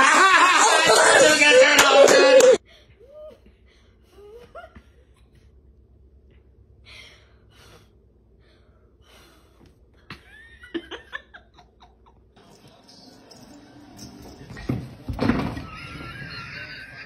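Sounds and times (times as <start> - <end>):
woman laughing: 4.2 - 5.4, 10.0 - 12.4, 15.6 - 17.0.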